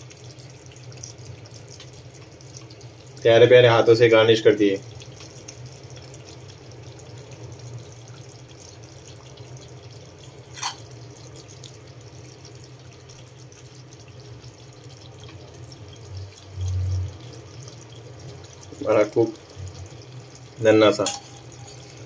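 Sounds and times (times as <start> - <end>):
curry bubbling: 0.0 - 22.0.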